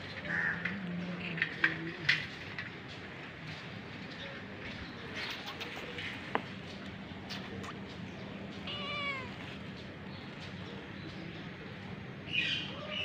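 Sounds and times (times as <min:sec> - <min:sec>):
cat meowing: 0:08.6 - 0:09.5.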